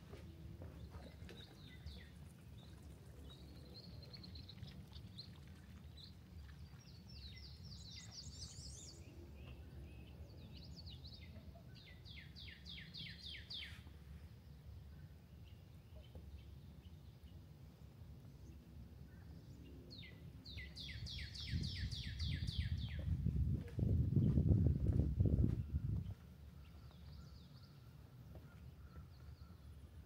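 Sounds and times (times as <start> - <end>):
songbirds chirping: 0.0 - 30.0
steady low rumble: 21.4 - 27.2.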